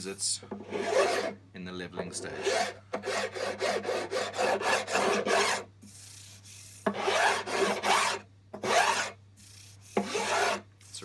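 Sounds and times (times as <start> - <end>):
file rasping on wood: 0.6 - 1.4, 2.1 - 5.7, 6.8 - 9.2, 10.0 - 10.6.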